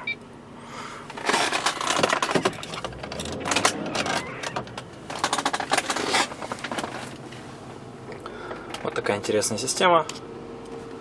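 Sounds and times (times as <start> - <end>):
plastic parts clicking and knocking: 1.1 - 7.0.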